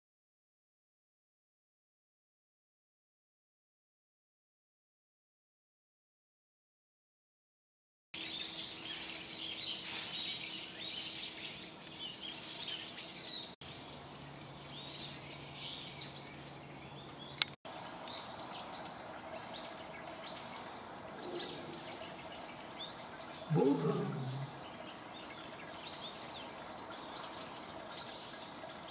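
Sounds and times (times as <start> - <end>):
small birds chirping: 8.2 - 28.9.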